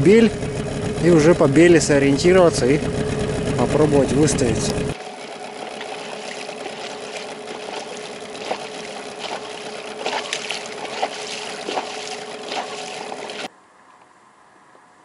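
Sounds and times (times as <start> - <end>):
motor hum: 0.0 - 13.5
water splashing against boat hull: 5.1 - 13.5.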